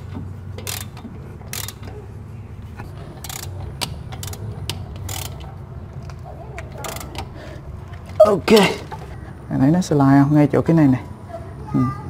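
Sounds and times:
steady low hum: 0:00.0 - 0:12.0
ratchet wrench clicking: 0:00.6 - 0:02.0, 0:03.2 - 0:05.5, 0:06.8 - 0:07.3.

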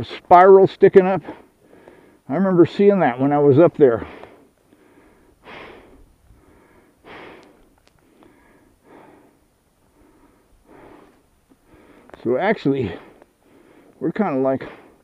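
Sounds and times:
person breathing: 0:01.2 - 0:02.3, 0:04.0 - 0:12.2, 0:12.8 - 0:14.0, 0:14.6 - 0:15.0.

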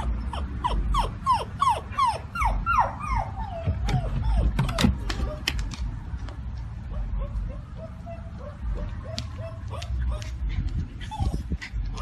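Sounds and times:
dog whining in short yelps: 0:00.0 - 0:05.4.

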